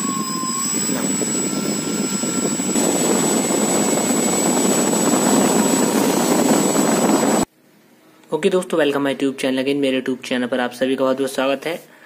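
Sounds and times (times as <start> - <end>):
propeller whooshing with motor whine: 0.0 - 7.5.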